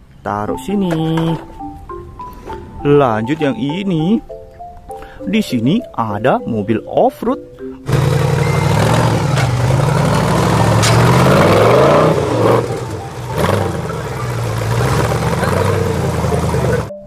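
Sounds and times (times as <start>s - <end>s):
buggy engine revving: 7.8s - 17.0s
sharp knocks: 8.4s - 12.6s.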